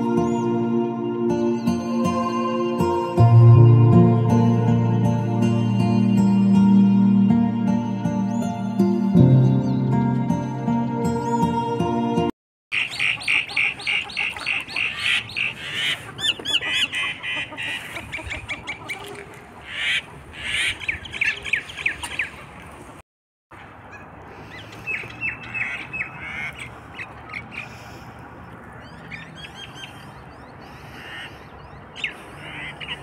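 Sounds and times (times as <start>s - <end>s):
ducks squawking: 12.8s - 22.6s, 23.8s - 33.0s.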